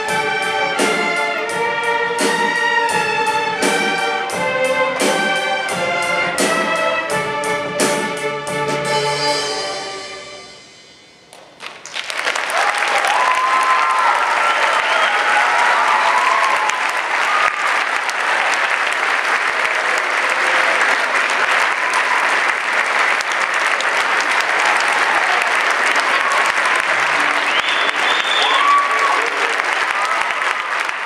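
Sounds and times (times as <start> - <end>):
audience applauding: 11.3 - 31.0
people cheering: 11.7 - 31.0.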